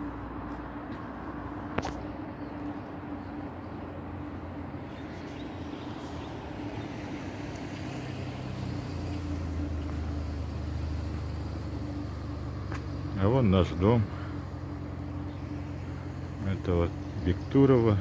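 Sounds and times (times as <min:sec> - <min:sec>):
car engine: 0:00.0 - 0:18.0
steady low hum: 0:00.0 - 0:18.0
street traffic: 0:00.0 - 0:18.0.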